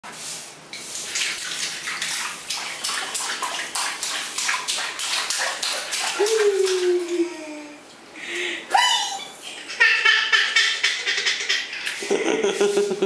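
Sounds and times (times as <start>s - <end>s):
water splashing in a bath tub: 0.8s - 7.8s.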